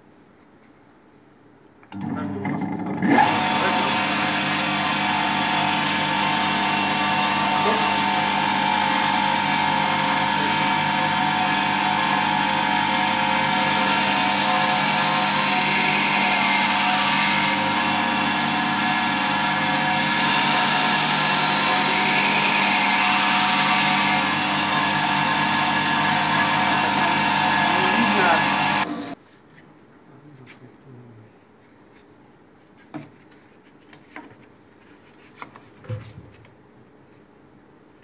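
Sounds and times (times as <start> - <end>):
blade grinding on abrasive belt: 3.0 - 29.2
sharpening machine motor whine: 3.1 - 29.2.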